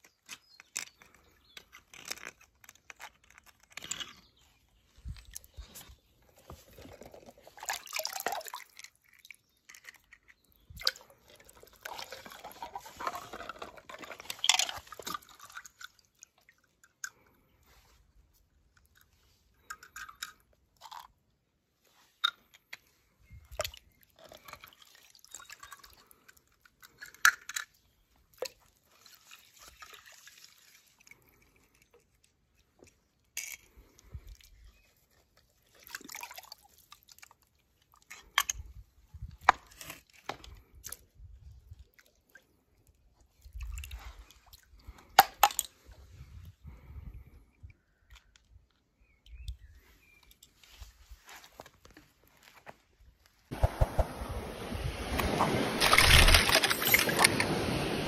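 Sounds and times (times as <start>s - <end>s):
plastic toy cars clicking: 26.6s - 27.8s, 55.8s - 57.5s.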